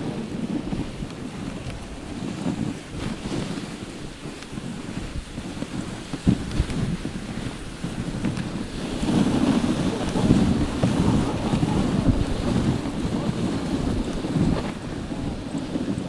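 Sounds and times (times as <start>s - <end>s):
sled rumbling over snow: 0.0s - 16.0s
wind buffeting microphone: 0.0s - 16.0s.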